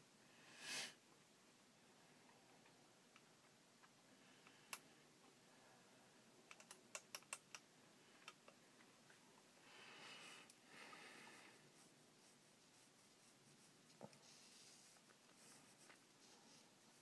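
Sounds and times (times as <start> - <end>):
soft rubbing: 9.1 - 17.0.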